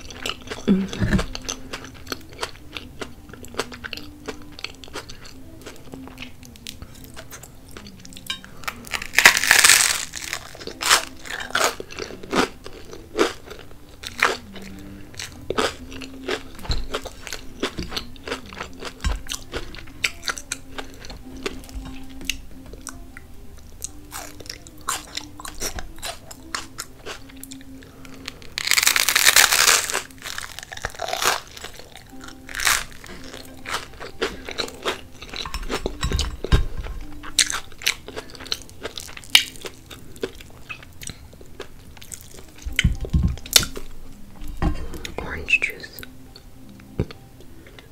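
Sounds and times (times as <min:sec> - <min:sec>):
crunchy chewing: 0:00.0 - 0:23.0, 0:23.8 - 0:43.9
crunching bites of toast: 0:08.8 - 0:13.5, 0:28.4 - 0:35.0.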